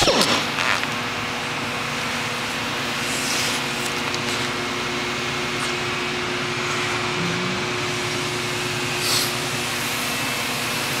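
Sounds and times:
machinery whirring hum: 0:00.0 - 0:11.0.

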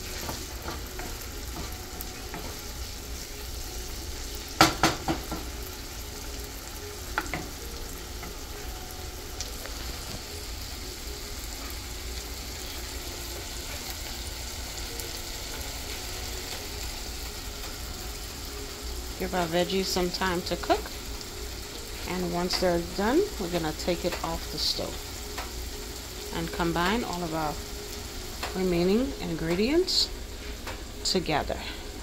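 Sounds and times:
vegetables sizzling in a frying pan: 0:00.0 - 0:32.0
wooden spoon knocking against pan: 0:04.6 - 0:05.5.

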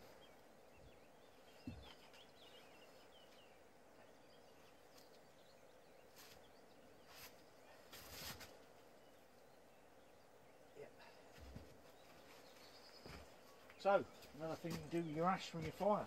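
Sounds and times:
faint bird chirps: 0:00.0 - 0:15.2.

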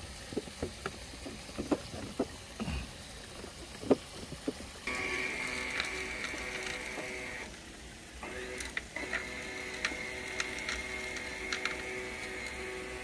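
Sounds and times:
bilge pump whining: 0:00.0 - 0:13.0.

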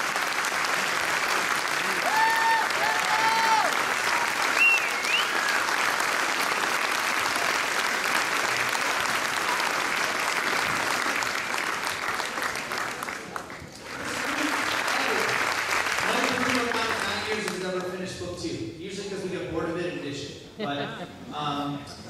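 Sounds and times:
audience applauding: 0:00.0 - 0:18.0
shrill cheers and whistles: 0:02.0 - 0:05.8.

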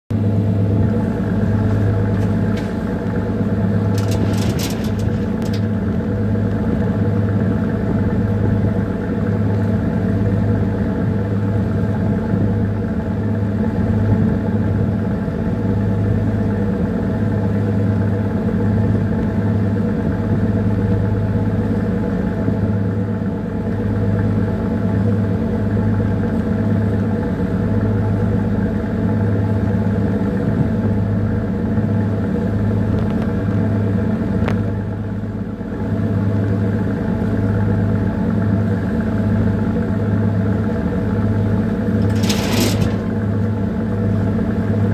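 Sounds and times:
ship diesel engine droning: 0:00.1 - 0:44.9
brief rattle: 0:03.7 - 0:05.9, 0:41.8 - 0:43.7.

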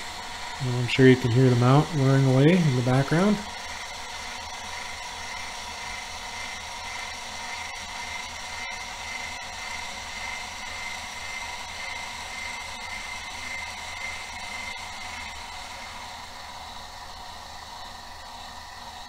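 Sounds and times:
motors whirring with high whine: 0:00.0 - 0:19.0.

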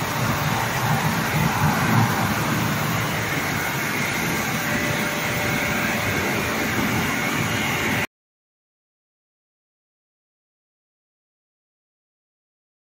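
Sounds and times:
factory machinery running: 0:00.0 - 0:08.1
faint machine whine: 0:00.0 - 0:08.1.

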